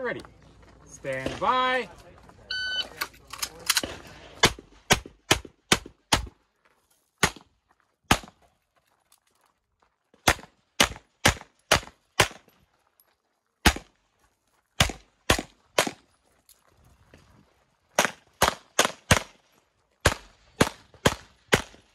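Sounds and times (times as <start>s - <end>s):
pistol shots: 3.6s - 6.3s, 8.1s - 8.4s, 10.2s - 12.4s, 13.6s - 13.9s, 14.8s - 16.0s, 18.0s - 19.4s, 20.0s - 21.9s.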